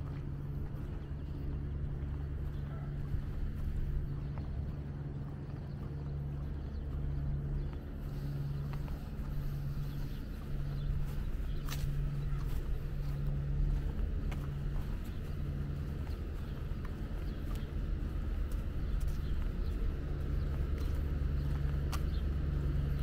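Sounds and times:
engine hum: 0.0 - 23.0
low rumble: 0.0 - 23.0.

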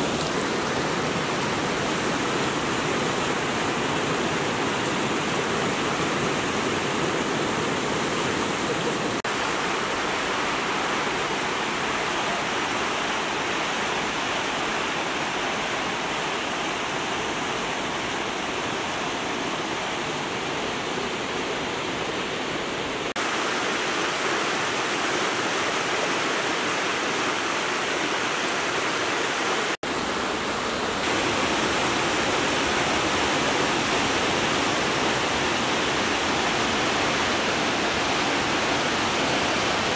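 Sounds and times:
creek rushing over rocks: 0.0 - 39.9.

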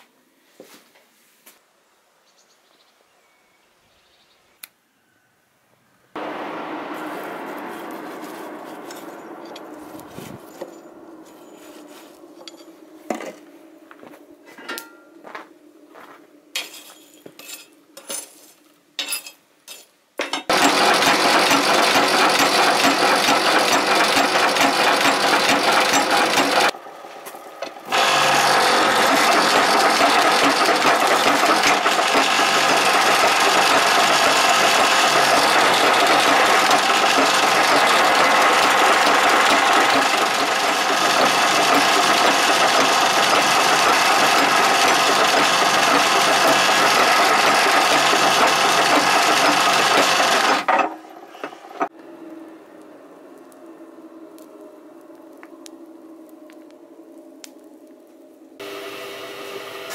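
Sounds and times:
hum: 6.0 - 16.6, 51.9 - 58.8
power hammer clattering: 20.2 - 26.7, 27.6 - 51.9.

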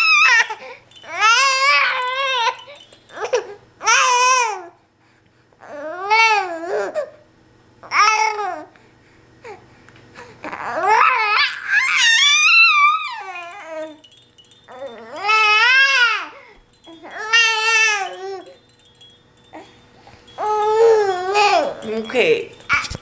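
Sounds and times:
baby cooing and babbling: 20.4 - 21.8.

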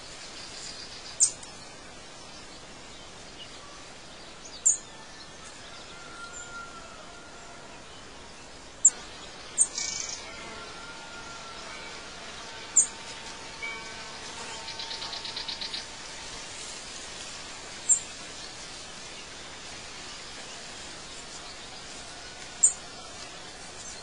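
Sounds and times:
steady background hiss: 0.0 - 24.0
birds chirping: 7.2 - 24.0.

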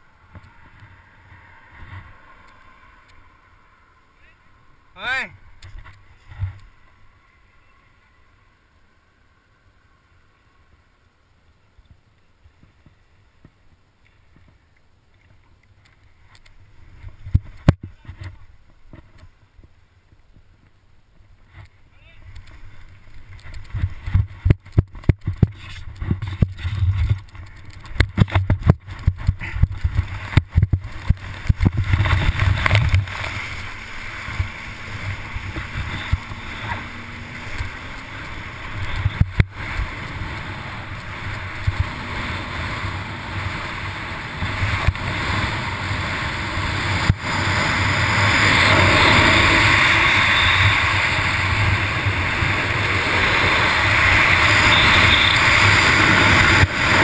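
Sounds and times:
wind buffeting: 22.6 - 57.0
rushing water: 29.6 - 57.0.

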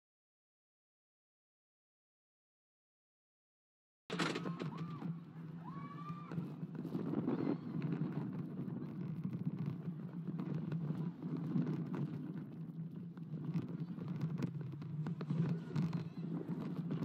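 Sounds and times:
roller coaster wheels rumbling on rails: 4.1 - 17.0.

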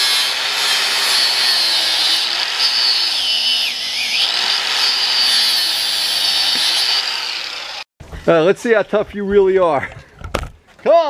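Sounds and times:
angle grinder cutting tyre: 0.0 - 7.9.

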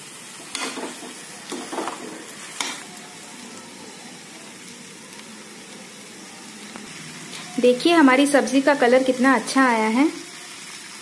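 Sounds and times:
vegetables sizzling in oil: 0.0 - 11.0
metal spatula scraping pan: 0.5 - 3.0.

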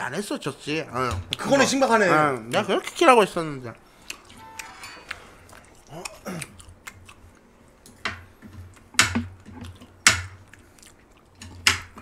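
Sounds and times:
utensils clacking against dishes: 4.4 - 5.4.

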